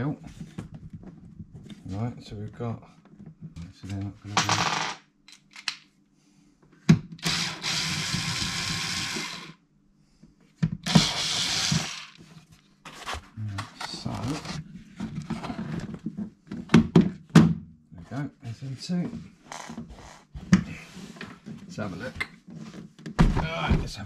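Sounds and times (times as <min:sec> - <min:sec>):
electric screwdriver whirring: 0:07.2 - 0:09.6, 0:10.8 - 0:12.2.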